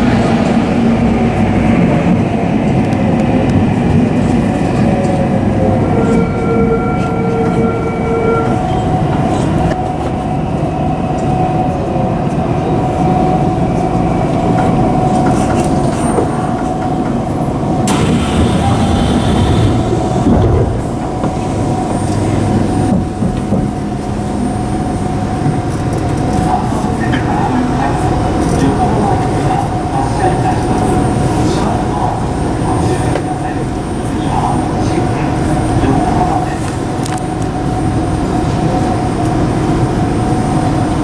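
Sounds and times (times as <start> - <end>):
wheels rumbling on track: 0.0 - 41.0
electric train motor whine: 17.8 - 22.4.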